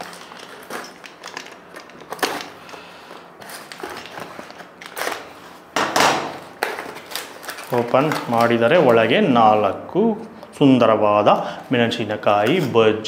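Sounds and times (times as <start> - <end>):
foil crinkling: 0.0 - 5.7, 6.4 - 10.1.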